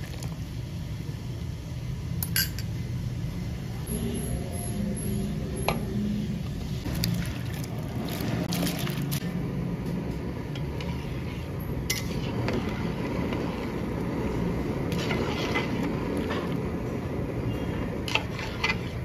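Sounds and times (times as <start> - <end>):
rice poured into boiling water: 6.9 - 9.3
metal spatula scraping a pot: 10.6 - 19.0.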